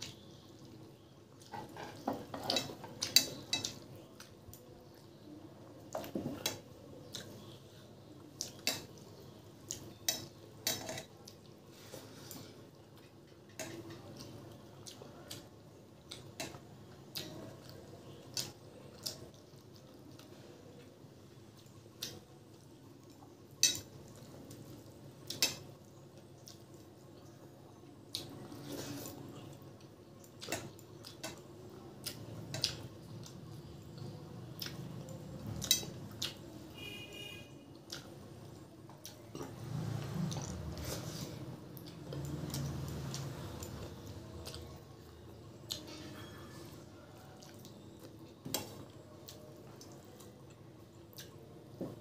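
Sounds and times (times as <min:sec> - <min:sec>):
eating sounds: 0:46.8 - 0:51.5.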